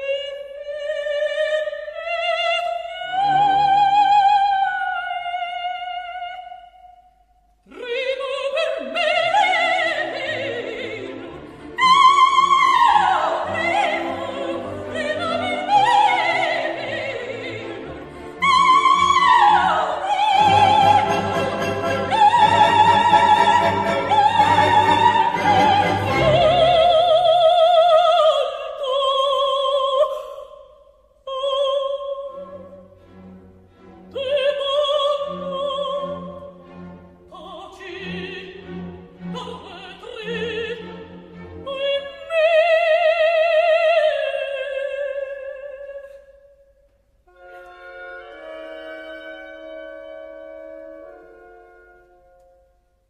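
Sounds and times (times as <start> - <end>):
soprano singing with vibrato: 0.0 - 7.0, 7.7 - 32.9, 34.1 - 36.6, 37.3 - 46.6
orchestra: 0.0 - 30.5, 31.3 - 46.4, 47.0 - 53.0.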